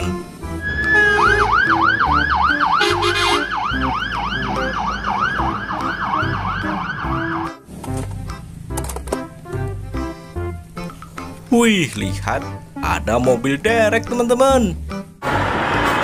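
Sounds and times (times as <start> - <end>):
fire engine siren yelping: 0.5 - 7.6.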